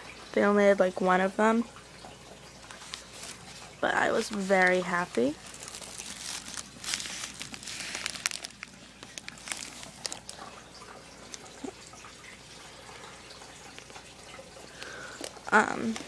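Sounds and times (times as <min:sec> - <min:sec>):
plastic bags rustling: 0:02.6 - 0:11.8.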